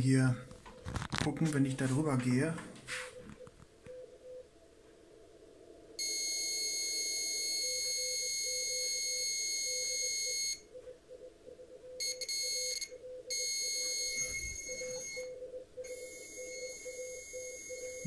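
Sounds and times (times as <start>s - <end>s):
morse code tone beeping: 6.0s - 10.7s, 12.0s - 18.0s
shrill electronic buzz: 12.1s - 18.0s.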